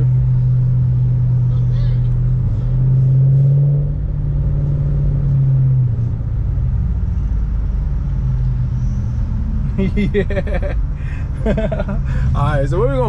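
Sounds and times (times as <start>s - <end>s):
car engine and exhaust droning: 0.0s - 13.0s
road noise: 0.0s - 13.0s.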